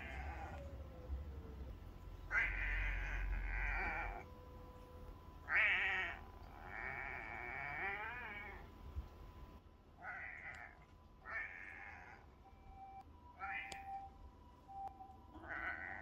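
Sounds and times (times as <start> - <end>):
cat meowing: 0.0 - 0.6, 2.3 - 4.2, 5.5 - 8.6, 10.0 - 12.2, 13.4 - 13.8, 15.4 - 16.0.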